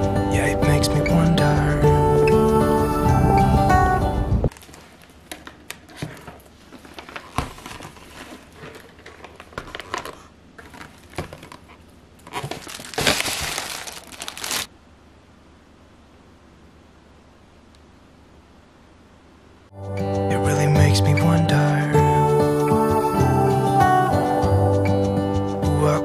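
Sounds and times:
plastic bag crinkling: 0:04.5 - 0:14.7
plastic packaging crinkling: 0:04.5 - 0:14.7.

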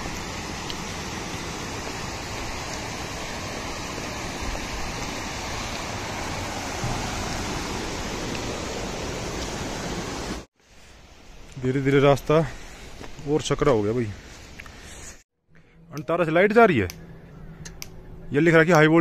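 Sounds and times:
stream water rushing over boulders: 0:00.0 - 0:11.1.

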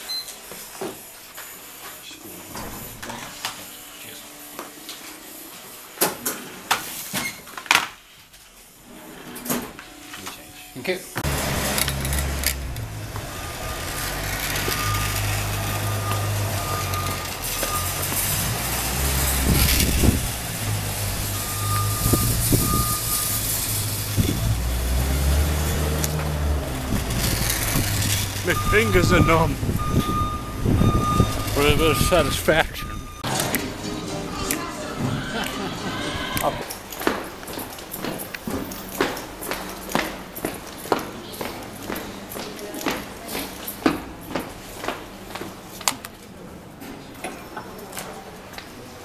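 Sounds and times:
vehicle engine rumbling: 0:11.2 - 0:33.3
reversing alarm beeps: 0:14.6 - 0:18.2, 0:21.2 - 0:23.7, 0:28.5 - 0:33.3.

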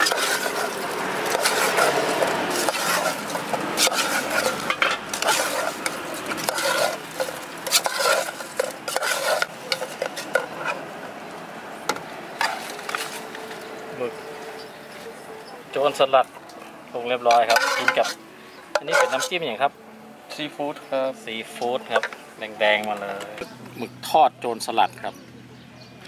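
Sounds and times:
metal spoon scraping a pot: 0:00.0 - 0:10.8, 0:12.4 - 0:13.6, 0:17.2 - 0:18.2, 0:18.8 - 0:19.5.

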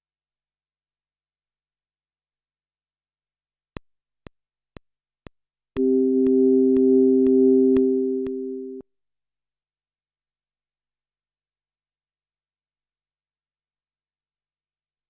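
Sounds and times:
held synth chord: 0:05.8 - 0:08.8
metronome clicking: 0:05.8 - 0:08.8.

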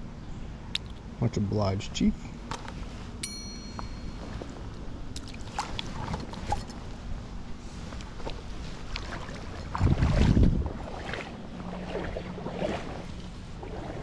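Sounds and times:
creek water splashing: 0:05.1 - 0:06.8, 0:08.0 - 0:14.0.

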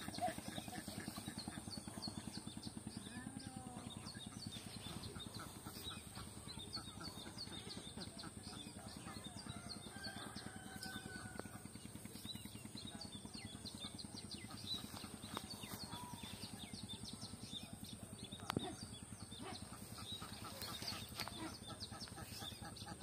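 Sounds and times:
low rapid pulsing sound: 0:00.0 - 0:23.0
small birds chirping: 0:00.0 - 0:23.0
chickens clucking: 0:04.0 - 0:10.7, 0:18.6 - 0:23.0.

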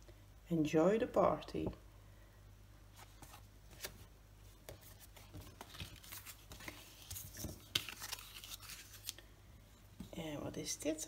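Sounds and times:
paper rustling: 0:03.0 - 0:09.2.

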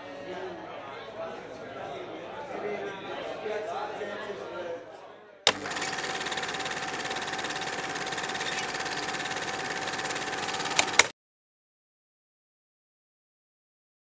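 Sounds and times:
film projector clatter: 0:05.5 - 0:11.1
projector clicks: 0:05.5 - 0:11.1
projector hum: 0:05.5 - 0:11.1.

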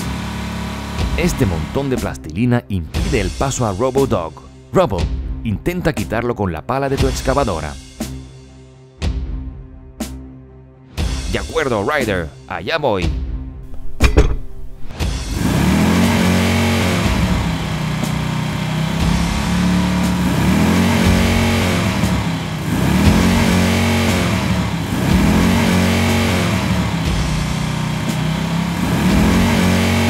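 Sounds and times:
heavy engine revving: 0:00.0 - 0:02.1, 0:13.7 - 0:30.0.

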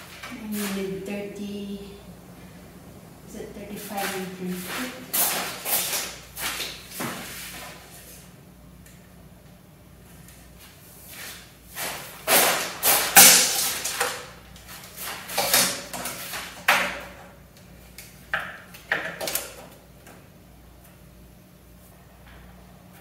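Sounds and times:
tape measure scraping and rattling: 0:04.1 - 0:06.6.

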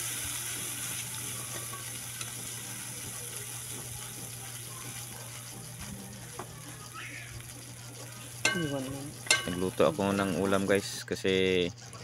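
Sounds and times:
food sizzling in a wok: 0:00.0 - 0:12.0
metal ladle stirring: 0:08.2 - 0:11.0.

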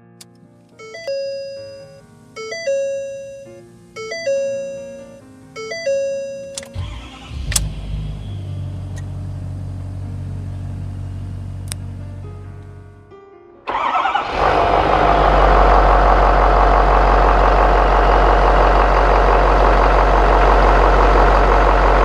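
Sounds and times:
multi-tone chime: 0:00.8 - 0:06.8
diesel engine starting and idling: 0:00.8 - 0:13.0, 0:13.7 - 0:22.0.

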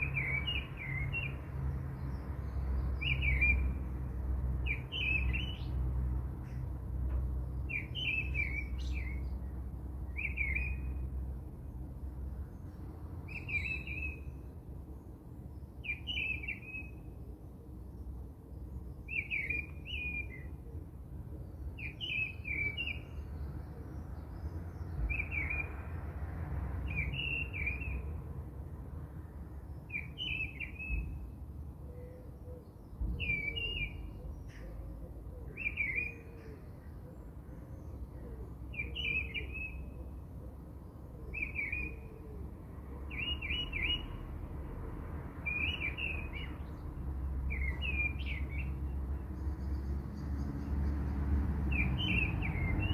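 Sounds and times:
bird chirping: 0:00.0 - 0:03.9, 0:04.6 - 0:06.7, 0:07.4 - 0:11.2, 0:12.5 - 0:14.6, 0:15.4 - 0:17.2, 0:17.9 - 0:20.6, 0:21.4 - 0:25.8, 0:26.8 - 0:28.2, 0:29.6 - 0:40.1, 0:40.8 - 0:42.3, 0:43.0 - 0:44.3, 0:45.4 - 0:51.1, 0:51.7 - 0:52.9.

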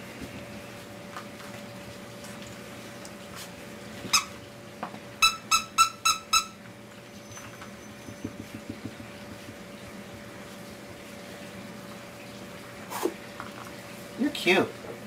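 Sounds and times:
puppies squeaking: 0:04.1 - 0:04.4, 0:05.2 - 0:08.5.

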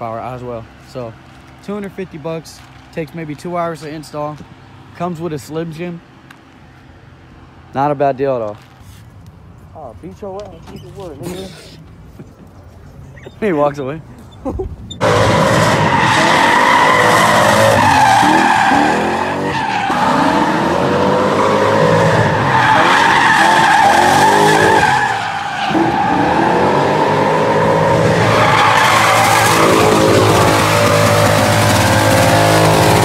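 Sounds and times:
tires squealing: 0:12.9 - 0:33.0
car engine revving: 0:15.0 - 0:33.0.

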